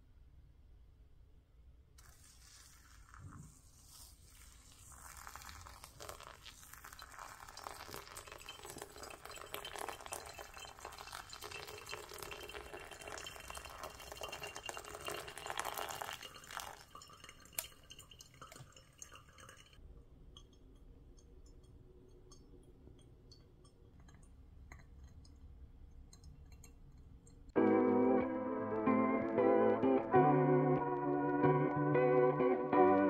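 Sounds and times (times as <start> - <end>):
hot water trickling onto coffee: 2.0 - 27.6.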